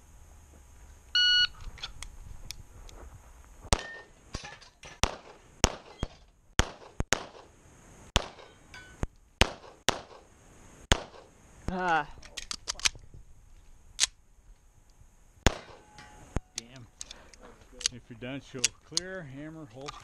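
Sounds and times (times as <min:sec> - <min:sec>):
pistol shots: 0:03.7 - 0:04.4, 0:05.0 - 0:07.5, 0:08.2 - 0:08.6, 0:09.4 - 0:10.3, 0:10.9 - 0:11.3, 0:15.4 - 0:15.9.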